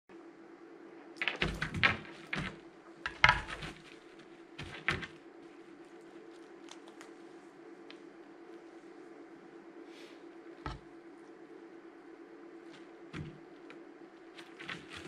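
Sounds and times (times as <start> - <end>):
steady low hum: 0.1 - 15.0
knocks and clatters of plastic pegs: 1.2 - 3.8.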